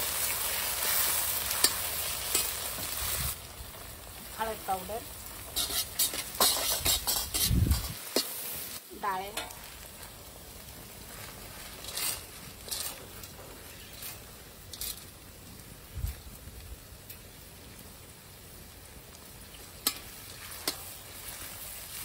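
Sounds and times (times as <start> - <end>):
masala sizzling in oil: 0.0 - 22.0
metal spatula scraping steel pan: 5.5 - 8.4, 11.6 - 15.0.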